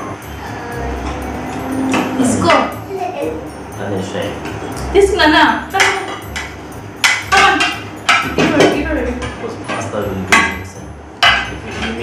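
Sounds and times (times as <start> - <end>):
plates clattering on table: 5.8 - 10.6, 11.2 - 12.0.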